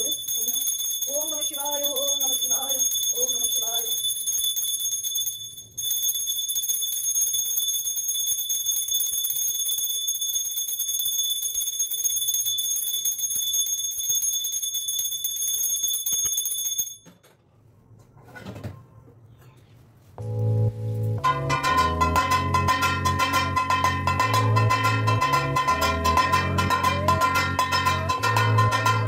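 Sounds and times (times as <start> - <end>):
small brass hand bell ringing: 0.0 - 17.1.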